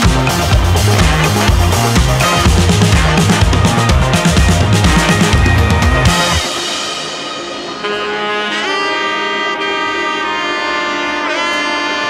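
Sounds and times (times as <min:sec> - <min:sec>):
horn-like background music: 0:00.0 - 0:12.0.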